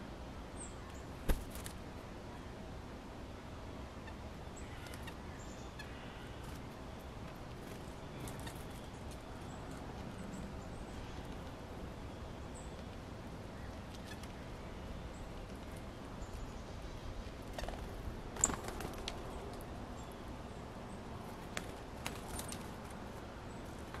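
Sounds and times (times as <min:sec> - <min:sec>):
low background noise: 0:00.0 - 0:24.0
faint bird chirps: 0:07.8 - 0:17.0.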